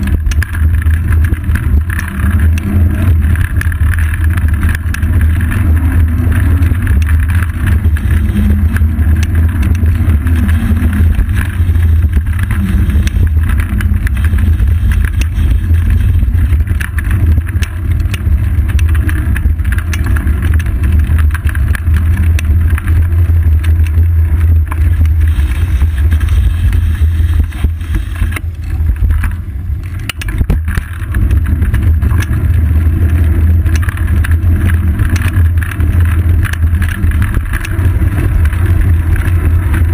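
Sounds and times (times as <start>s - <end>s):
road vibration rumble: 0.0s - 39.9s.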